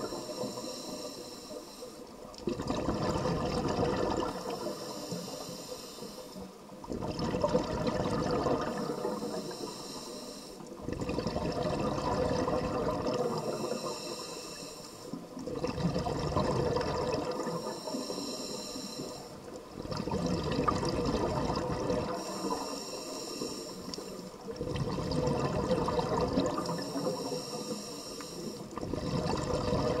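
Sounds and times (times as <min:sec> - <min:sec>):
regulator hiss on inhale: 0:00.0 - 0:02.3, 0:04.1 - 0:06.9, 0:08.6 - 0:10.8, 0:12.4 - 0:15.5, 0:17.2 - 0:19.7, 0:22.0 - 0:24.6, 0:26.1 - 0:28.8
exhaust bubbles underwater: 0:02.4 - 0:05.4, 0:06.8 - 0:09.6, 0:10.7 - 0:14.0, 0:15.1 - 0:18.0, 0:19.2 - 0:22.8, 0:23.8 - 0:27.7, 0:28.4 - 0:30.0.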